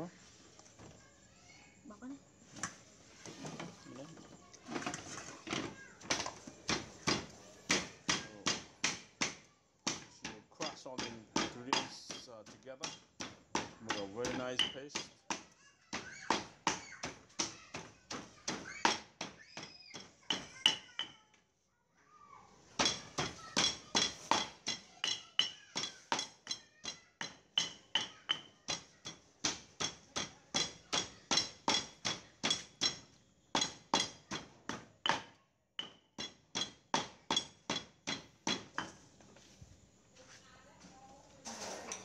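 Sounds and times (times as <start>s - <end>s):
stone pestle pounding in mortar: 6.7s - 21.1s, 22.8s - 39.0s.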